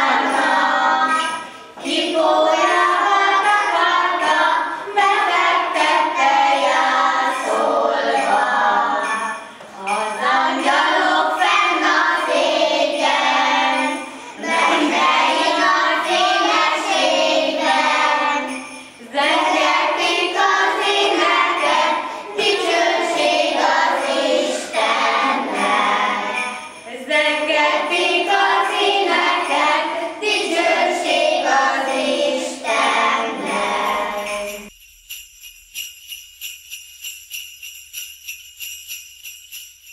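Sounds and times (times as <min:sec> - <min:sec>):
children singing a carol: 0:00.0 - 0:34.7.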